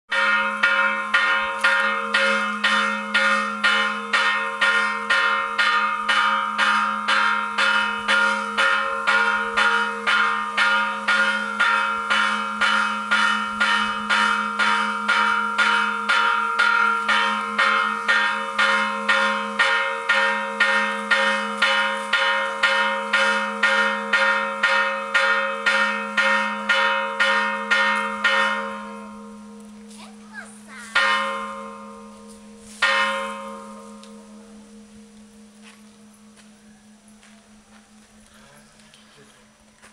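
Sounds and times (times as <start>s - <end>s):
church bell ringing: 0.1s - 39.2s.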